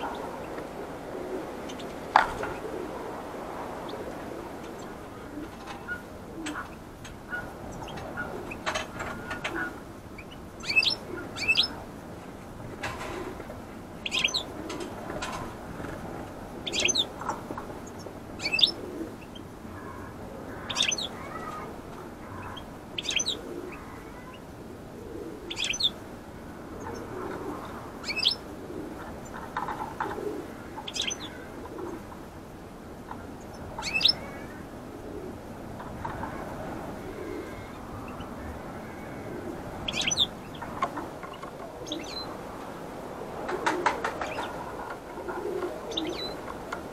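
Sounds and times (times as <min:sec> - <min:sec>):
soft low bird calls: 0:00.0 - 0:12.0, 0:13.1 - 0:15.3, 0:16.5 - 0:46.9
finches chirping: 0:09.4 - 0:11.8, 0:14.0 - 0:14.5, 0:16.6 - 0:17.1, 0:17.8 - 0:21.5, 0:22.2 - 0:24.4, 0:25.5 - 0:26.0, 0:28.0 - 0:28.4, 0:30.8 - 0:31.5, 0:33.4 - 0:34.5, 0:39.8 - 0:42.3.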